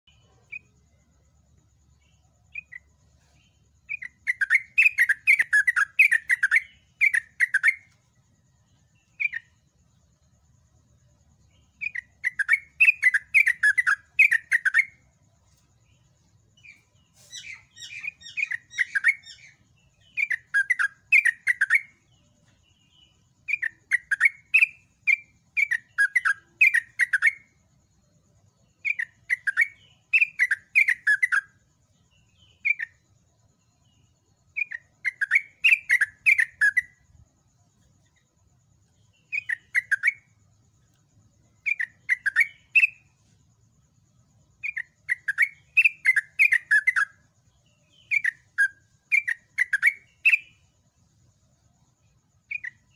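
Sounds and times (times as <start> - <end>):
bulbul singing: 0.0 - 52.9.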